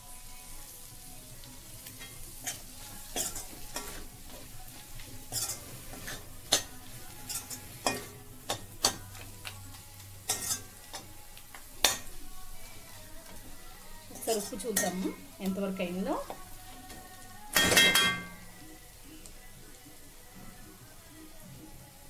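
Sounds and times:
chicken sizzling in a pan: 0:00.0 - 0:22.0
metal spoon scraping a pan: 0:01.9 - 0:13.1, 0:14.1 - 0:15.4.

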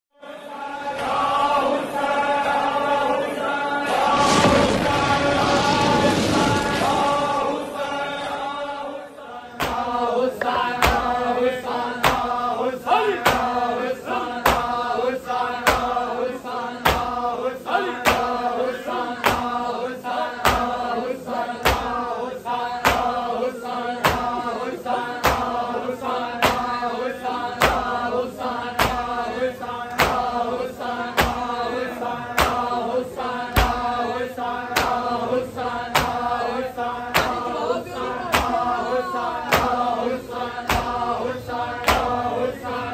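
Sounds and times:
men chanting in unison: 0:00.2 - 0:42.9
rhythmic chest-beating slaps: 0:09.5 - 0:42.9.

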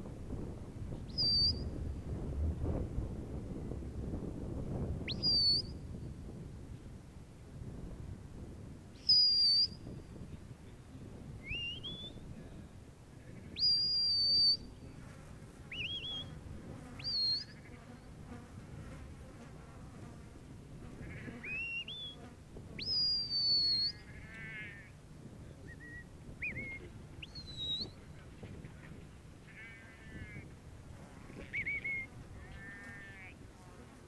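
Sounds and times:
sharp high whistle blasts: 0:05.1 - 0:05.8, 0:13.6 - 0:14.7.

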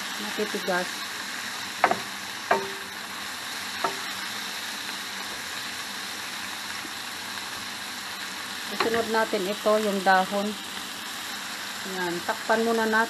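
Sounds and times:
vegetables sizzling in a frying pan: 0:00.0 - 0:13.0
wooden spoon knocking on pan: 0:01.8 - 0:03.0, 0:03.8 - 0:04.1, 0:08.8 - 0:09.1.

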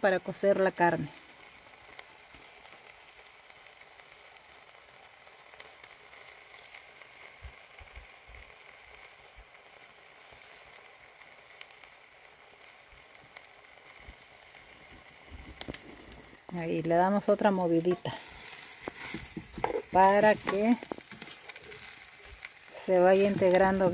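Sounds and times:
steak sizzling in a pot: 0:00.0 - 0:23.9
small pops: 0:13.0 - 0:16.6, 0:17.9 - 0:23.9.

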